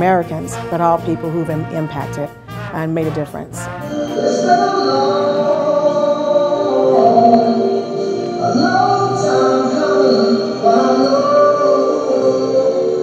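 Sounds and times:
slow song with held vocal notes: 0:03.8 - 0:13.0.

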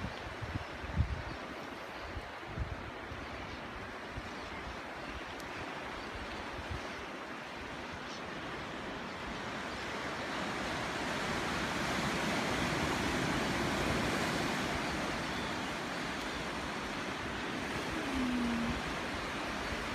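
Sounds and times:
wind on microphone: 0:00.0 - 0:08.0, 0:10.5 - 0:19.9
surf washing over rocks: 0:04.8 - 0:19.9.

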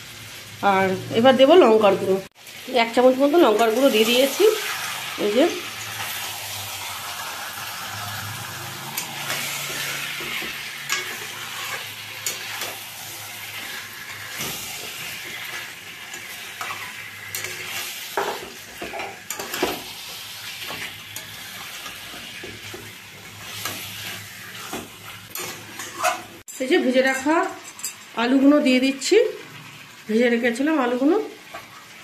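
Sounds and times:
chicken sizzling in oil: 0:00.0 - 0:32.0
metal spatula scraping pan: 0:03.5 - 0:26.4.

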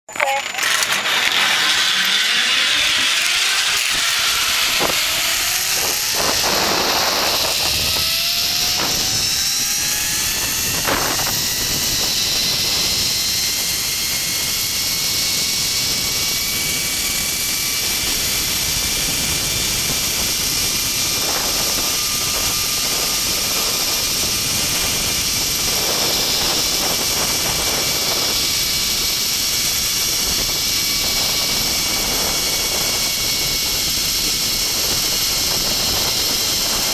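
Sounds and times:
zipline pulleys whining on cable: 0:00.1 - 0:36.9
wind rushing on microphone: 0:01.8 - 0:36.9.

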